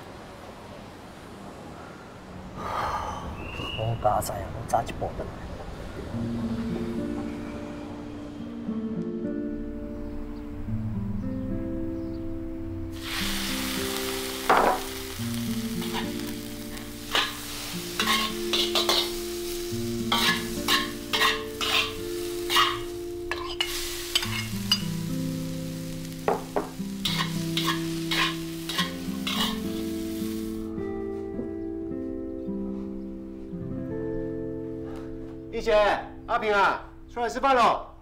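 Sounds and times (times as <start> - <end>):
vegetables sizzling in a wok: 12.9 - 30.7
metal spatulas scraping a pan: 15.8 - 16.3, 17.1 - 19.2, 20.0 - 24.9, 27.0 - 29.9.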